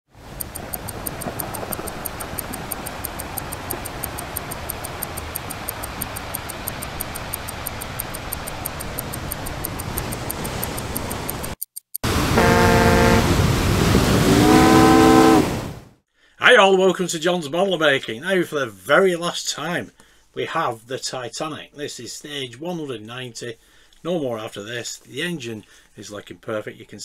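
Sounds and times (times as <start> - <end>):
fast even ticking: 0.2 - 12.1
steady rushing noise: 0.2 - 14.5
multi-tone horn blast: 12.1 - 13.5, 14.2 - 15.7.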